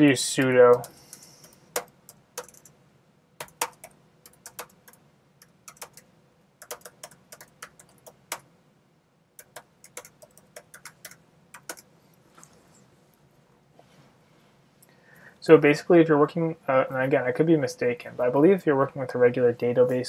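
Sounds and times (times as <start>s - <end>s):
keyboard keystrokes clicking: 0.4s - 2.7s, 3.4s - 6.0s, 6.6s - 8.4s, 9.4s - 11.8s.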